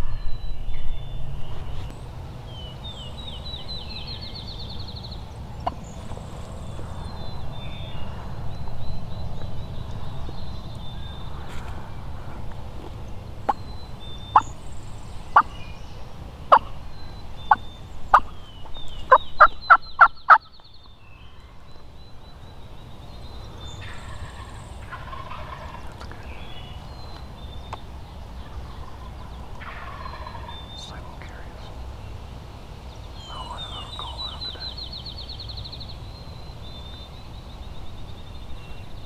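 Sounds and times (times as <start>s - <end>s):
turkey clucks and yelps: 19.1s - 20.5s, 23.8s - 26.2s, 28.6s - 30.5s
distant turkey gobbles: 23.8s - 26.2s, 28.5s - 30.9s.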